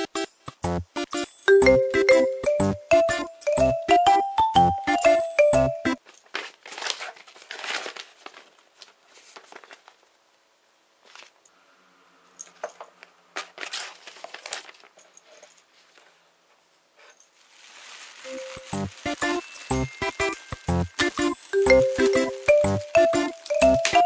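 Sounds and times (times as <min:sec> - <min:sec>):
plastic wrapping crinkling: 0:06.0 - 0:10.1, 0:13.4 - 0:15.1, 0:17.1 - 0:24.0.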